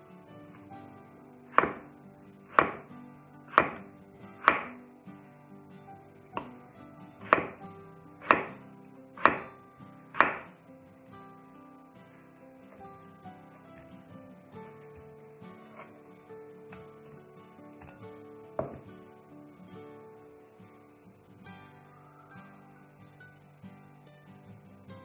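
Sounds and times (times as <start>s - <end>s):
faint background music: 0.0s - 25.0s
knife chopping on wooden board: 1.6s - 1.8s, 2.5s - 2.8s, 3.5s - 3.8s, 4.4s - 4.7s, 7.3s - 7.6s, 8.2s - 8.5s, 9.2s - 9.5s, 10.2s - 10.5s.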